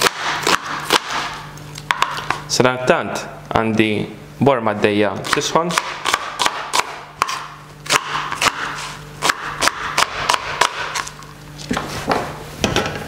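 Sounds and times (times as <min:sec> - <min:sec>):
knife chopping on plastic board: 0:00.0 - 0:02.4, 0:05.2 - 0:11.1
steady low hum: 0:00.0 - 0:13.0.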